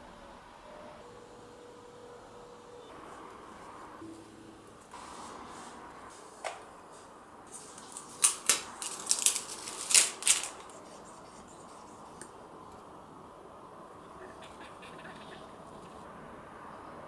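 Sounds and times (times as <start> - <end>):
plastic film crackling: 7.5 - 11.2.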